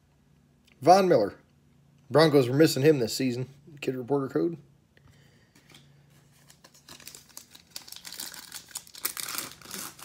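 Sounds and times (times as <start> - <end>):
foil pack crinkling and tearing: 6.4 - 10.0.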